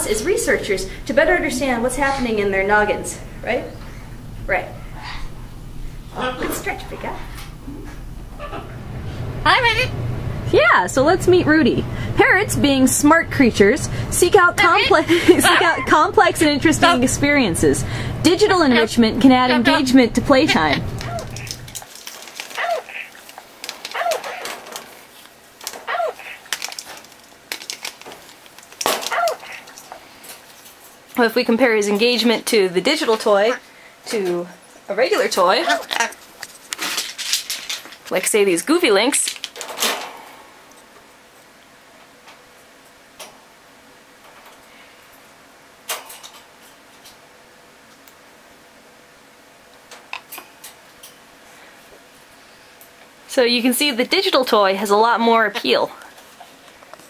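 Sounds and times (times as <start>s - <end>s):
parrot bark-like calls: 4.8s - 5.4s, 7.7s - 8.8s, 20.6s - 21.6s, 22.6s - 23.2s, 23.9s - 24.6s, 25.8s - 26.4s, 29.0s - 30.0s.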